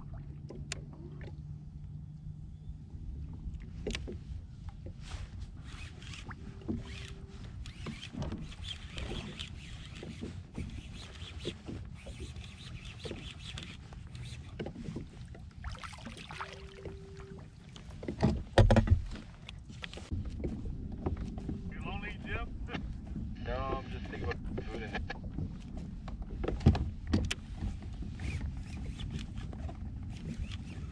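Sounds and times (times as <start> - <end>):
water lapping against kayak hull: 0.0 - 30.9
short steady beep: 16.5 - 17.4.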